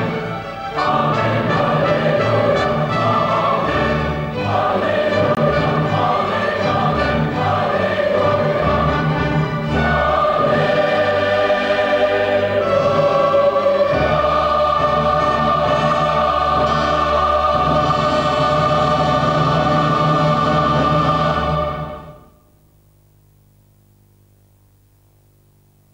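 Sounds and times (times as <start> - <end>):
orchestra playing: 0.0 - 11.0
large choir singing: 0.0 - 22.4
faint hum with static: 0.0 - 25.9.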